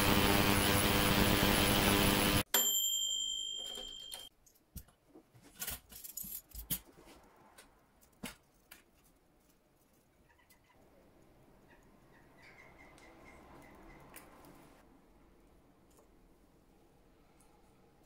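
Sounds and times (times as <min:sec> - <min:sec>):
machine running noise: 0:00.0 - 0:02.4
high ringing tone: 0:02.0 - 0:04.3.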